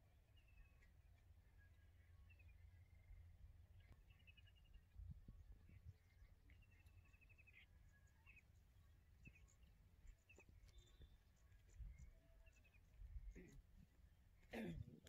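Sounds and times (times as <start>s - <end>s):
high bird chirps: 9.2s - 13.0s.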